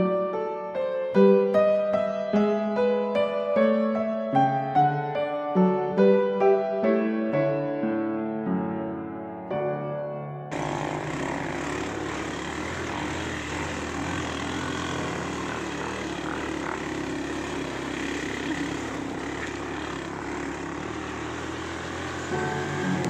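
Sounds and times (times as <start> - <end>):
piano music: 0.0 - 10.6, 21.7 - 23.0
motorcycle engine running: 10.5 - 23.0.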